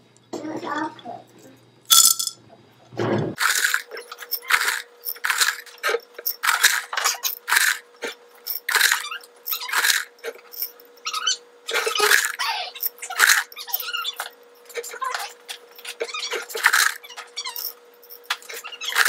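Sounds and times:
pebbles clattering into glass jar: 1.9s - 2.4s, 3.4s - 7.8s, 8.4s - 10.8s, 15.8s - 19.0s.

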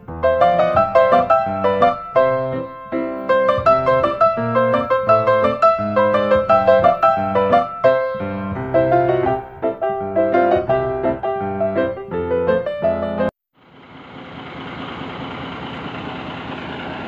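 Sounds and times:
quick piano run: 0.0s - 13.4s.

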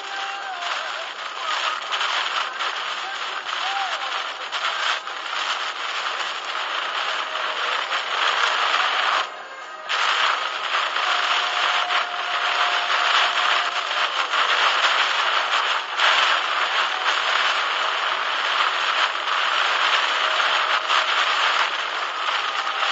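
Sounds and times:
heavy rain on car roof: 0.0s - 22.9s.

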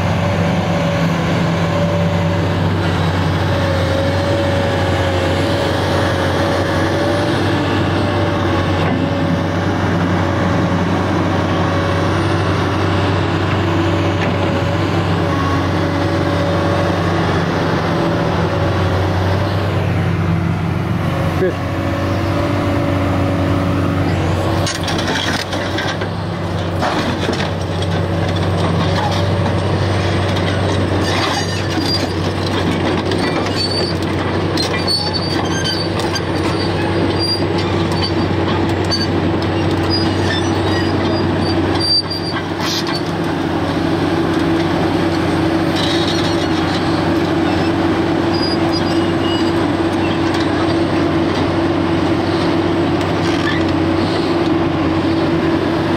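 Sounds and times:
excavator diesel engine running: 0.0s - 55.9s
short high squeaks: 33.2s - 38.3s, 38.9s - 43.1s, 48.3s - 50.2s.

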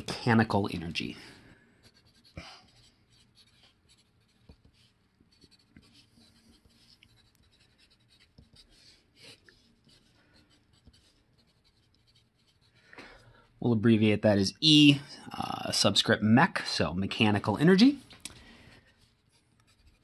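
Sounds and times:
pencil scratching on paper: 1.8s - 12.8s, 18.8s - 20.0s.

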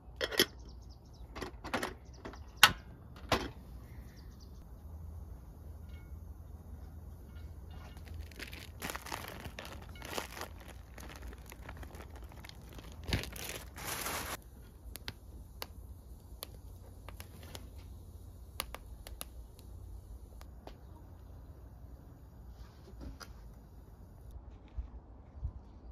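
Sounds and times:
crinkling and rustling handling: 7.2s - 18.0s.

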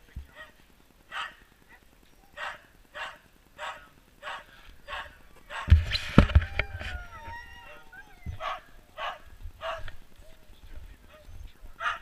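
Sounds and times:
dogs barking: 0.3s - 5.8s, 6.9s - 10.0s, 11.1s - 12.0s
loud thump: 5.7s - 6.8s.

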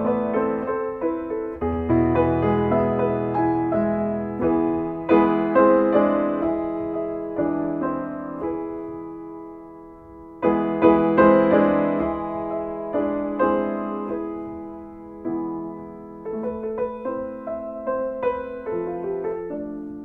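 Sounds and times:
piano chords ringing: 0.0s - 20.0s.

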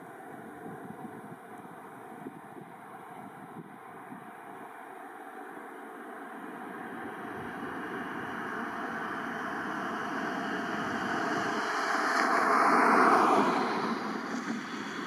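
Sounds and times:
vehicle passing close by: 6.6s - 15.0s.

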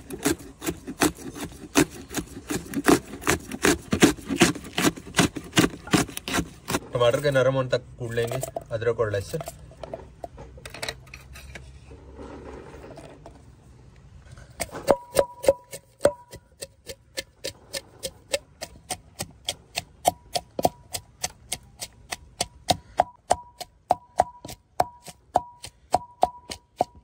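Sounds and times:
pestle pounding in mortar: 0.0s - 6.8s, 14.6s - 27.0s.

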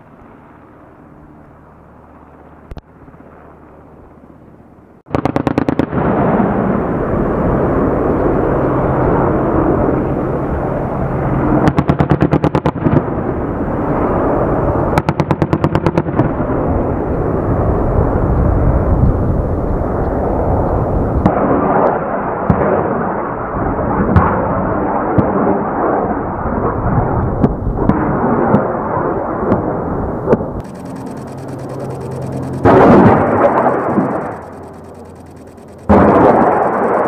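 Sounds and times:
helicopter rotor and turbine noise: 0.0s - 5.0s, 6.3s - 11.8s, 30.6s - 37.0s
cannon firing bursts: 5.1s - 6.8s, 30.6s - 37.0s.

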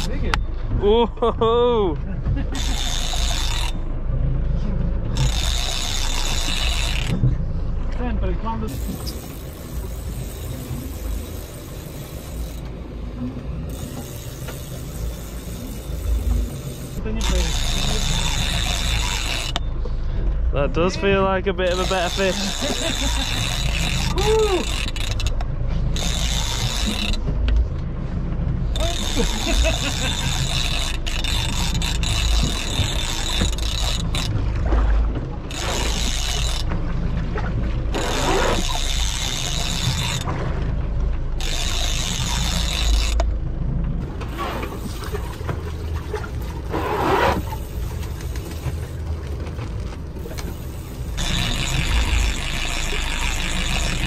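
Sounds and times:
wind and sea rumble: 0.0s - 54.0s
fishing reel whirring: 2.5s - 3.9s, 5.1s - 7.2s, 8.7s - 12.7s, 13.6s - 19.7s, 21.7s - 27.3s, 28.8s - 34.4s, 35.5s - 36.8s, 37.9s - 40.3s, 41.4s - 43.2s, 49.8s - 54.0s.

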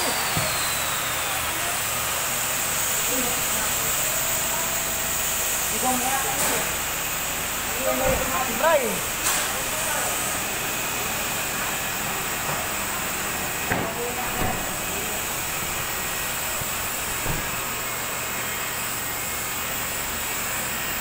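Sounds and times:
steady hissing noise: 3.0s - 18.8s.

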